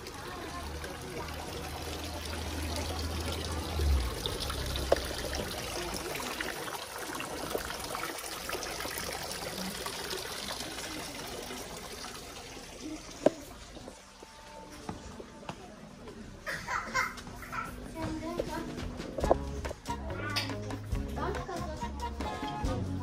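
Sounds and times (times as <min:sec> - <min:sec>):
water trickling: 0:00.0 - 0:15.4.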